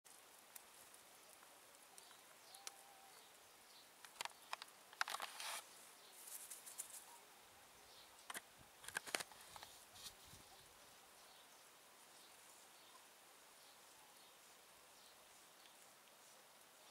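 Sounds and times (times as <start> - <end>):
high ticks and chirps: 0.1 - 5.1
low steady hiss: 0.1 - 16.9.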